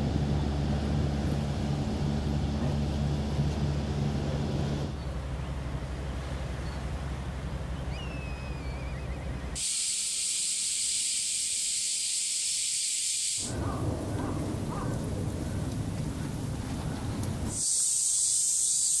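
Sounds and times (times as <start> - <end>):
low rumble: 0.0 - 6.3, 13.5 - 17.5
loud high-pitched hiss: 9.6 - 13.6, 17.5 - 19.0.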